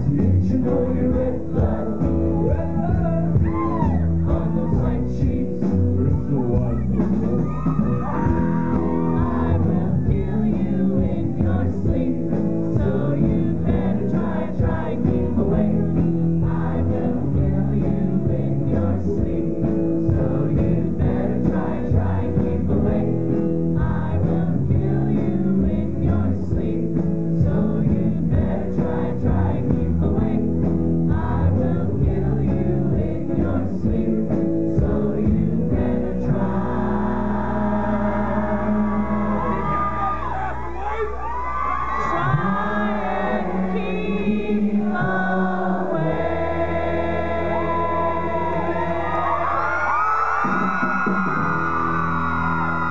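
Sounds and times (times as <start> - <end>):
live rock band playing: 0.0 - 37.5, 49.6 - 52.9
person singing: 0.0 - 40.7, 41.8 - 51.7.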